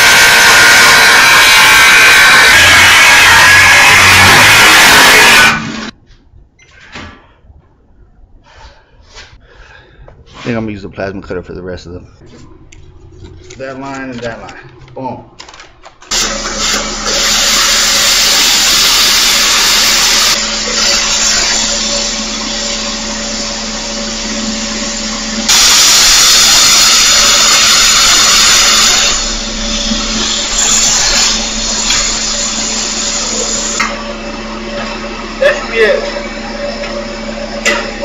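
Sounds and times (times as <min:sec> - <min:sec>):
plasma cutter hissing: 0:00.0 - 0:05.9, 0:16.1 - 0:23.5, 0:24.9 - 0:33.9
low hum: 0:11.4 - 0:13.8, 0:16.2 - 0:38.0.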